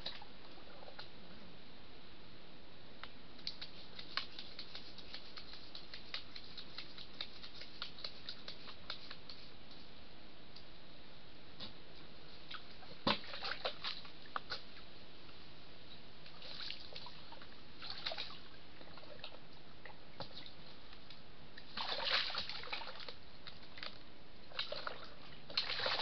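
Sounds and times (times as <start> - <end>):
water sloshing and dripping: 12.5 - 14.6, 16.3 - 20.7, 21.6 - 26.0.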